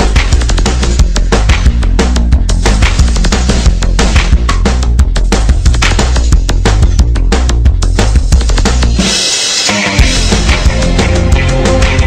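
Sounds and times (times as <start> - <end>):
dramatic music with percussion: 0.0 - 12.0.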